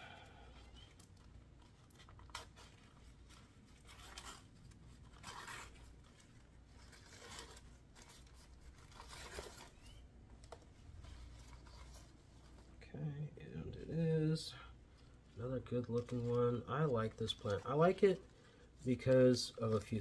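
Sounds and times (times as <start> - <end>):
packaging tearing and rustling: 0.6 - 12.2.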